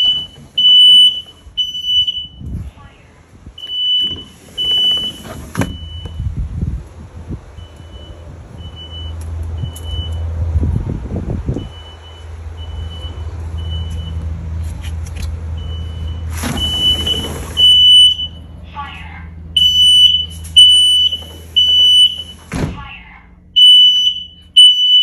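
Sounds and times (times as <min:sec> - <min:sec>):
smoke alarm beeping: 0:00.0 - 0:02.5, 0:03.6 - 0:06.3, 0:15.6 - 0:18.4, 0:19.6 - 0:22.5, 0:23.6 - 0:25.0
low rumble: 0:00.0 - 0:24.6.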